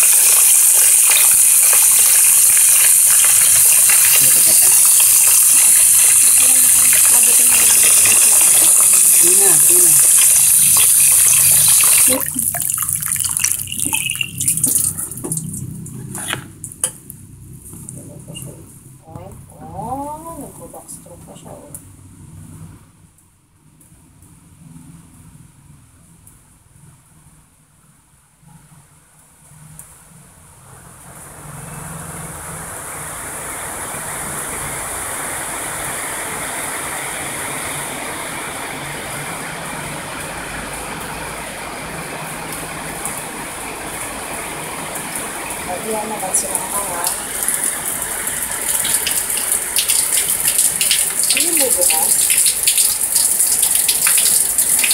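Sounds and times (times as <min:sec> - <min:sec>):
water dripping and trickling: 0:00.0 - 0:16.9, 0:39.7 - 0:54.9
water splashing into plastic tub: 0:11.9 - 0:15.6.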